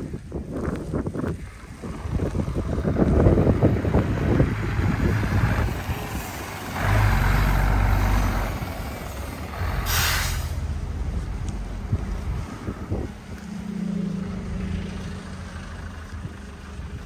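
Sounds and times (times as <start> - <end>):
wind buffeting microphone: 0.0 - 17.0
heavy vehicle engine rumbling by: 1.2 - 17.0
sharp burst of hiss: 9.7 - 10.7.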